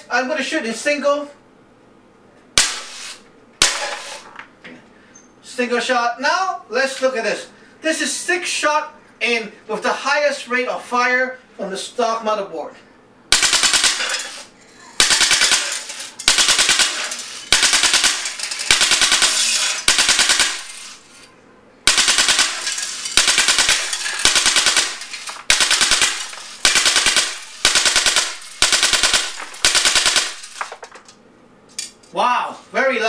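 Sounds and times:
bb machine gun firing bursts: 0:13.3 - 0:21.0, 0:21.9 - 0:30.8
bbs striking tin cans: 0:21.9 - 0:27.5, 0:28.1 - 0:31.0.

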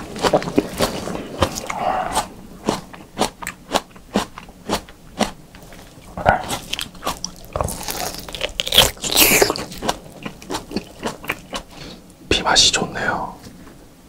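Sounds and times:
chewing raw meat: 0:00.0 - 0:12.0
bite into meat: 0:06.2 - 0:11.7.

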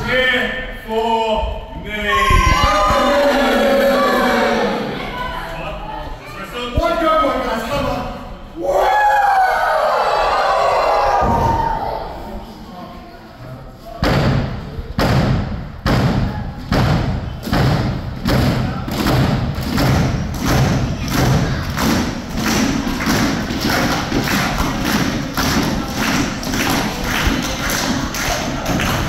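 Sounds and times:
crowd stomping and clapping: 0:14.1 - 0:29.0.

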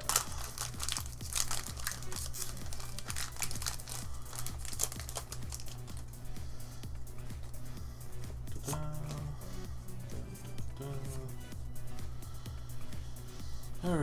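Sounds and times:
foil wrapper crinkling: 0:00.0 - 0:06.0
background music with steady beat: 0:00.0 - 0:14.0.

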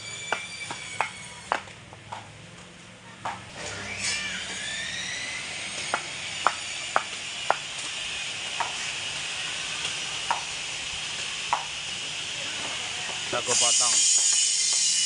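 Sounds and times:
high-pitched hiss: 0:07.3 - 0:15.0.

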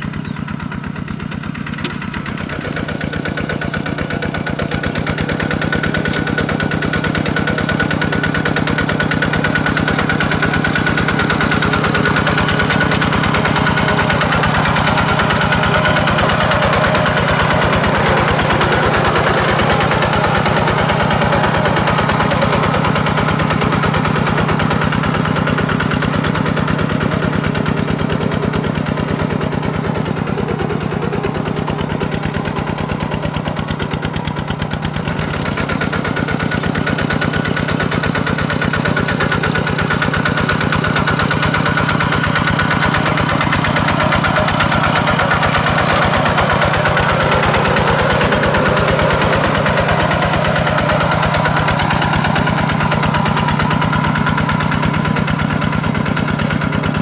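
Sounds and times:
diesel tractor engine chugging: 0:00.0 - 0:57.0.

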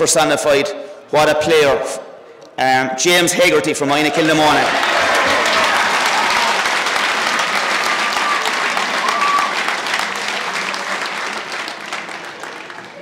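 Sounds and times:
crowd applauding: 0:04.1 - 0:13.0.

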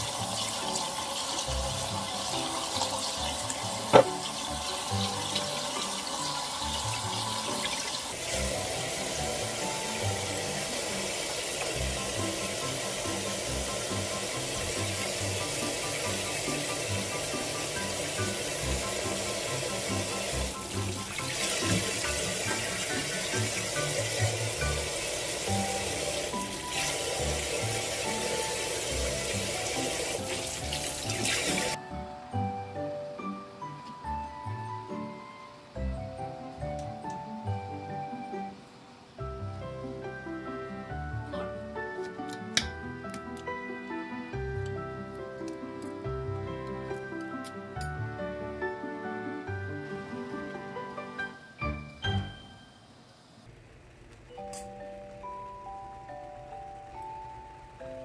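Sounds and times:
toy piano tune: 0:00.0 - 0:11.0, 0:50.6 - 0:53.0, 0:54.3 - 0:58.0
tap water running into metal bowl: 0:00.0 - 0:31.8
tap water splashing into bowl: 0:03.9 - 0:04.4.

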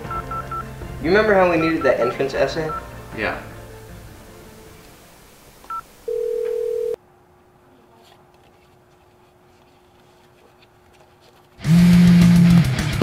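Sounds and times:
faint steady hum: 0:02.7 - 0:11.5.

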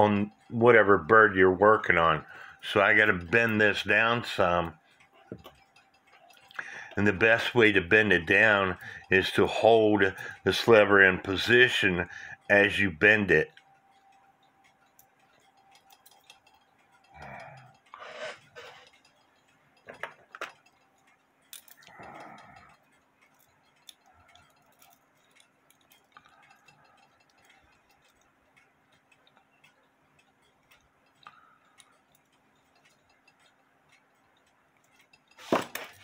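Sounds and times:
clock ticking: 0:00.0 - 0:36.0
clicks and knocks of brass parts: 0:18.8 - 0:28.2, 0:34.4 - 0:36.0.

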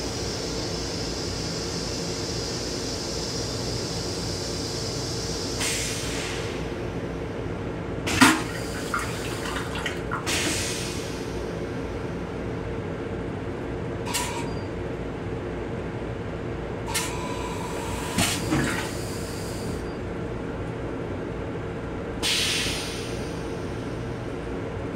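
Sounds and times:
train running hum: 0:00.0 - 0:24.9
toilet flush clack: 0:08.1 - 0:10.7, 0:18.2 - 0:19.0.

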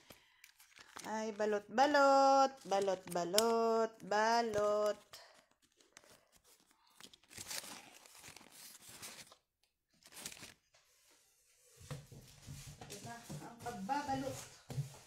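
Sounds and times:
wrapping material crinkling and tearing: 0:00.0 - 0:01.5, 0:04.6 - 0:11.0.

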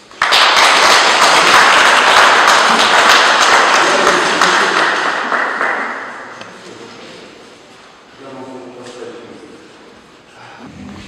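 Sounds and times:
small group applauding: 0:00.0 - 0:06.7.

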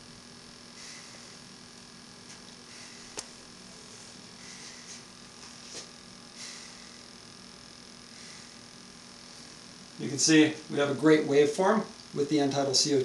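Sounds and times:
low electrical hum: 0:00.0 - 0:13.0
soft nasal breathing: 0:00.6 - 0:01.6, 0:02.2 - 0:07.3, 0:08.0 - 0:09.8.

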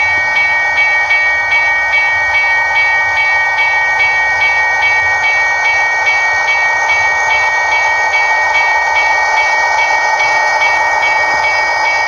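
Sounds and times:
level crossing bell ringing: 0:00.0 - 0:12.0.

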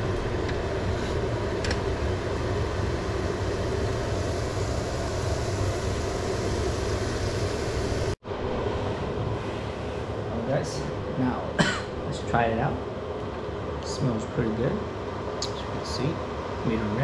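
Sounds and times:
stove burner rushing: 0:00.0 - 0:08.2.

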